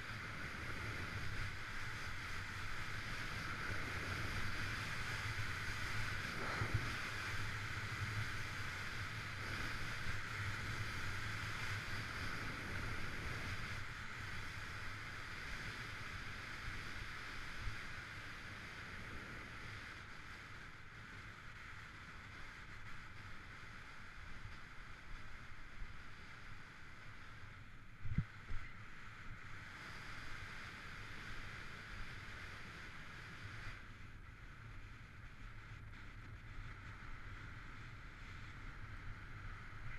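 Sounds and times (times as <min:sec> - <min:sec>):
wind on microphone: 0:00.0 - 0:14.6, 0:27.9 - 0:32.7.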